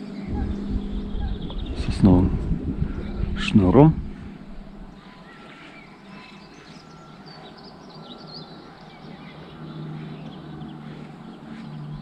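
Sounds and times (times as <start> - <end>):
low steady hum: 0.0 - 5.4
faint bird chirps: 0.0 - 12.0.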